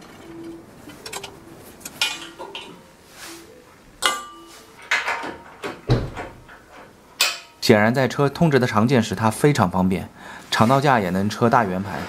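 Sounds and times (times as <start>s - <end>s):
metal clinks and knocks: 0.0s - 2.9s, 4.0s - 7.6s
ringing metal clank: 0.0s - 3.0s, 4.0s - 5.7s, 7.2s - 7.6s.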